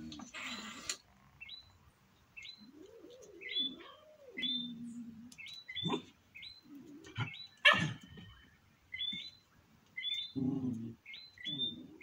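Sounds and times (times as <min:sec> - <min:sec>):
high bird chirps: 0:01.4 - 0:01.8, 0:02.4 - 0:02.8, 0:03.4 - 0:04.8, 0:05.4 - 0:10.4, 0:11.0 - 0:12.0.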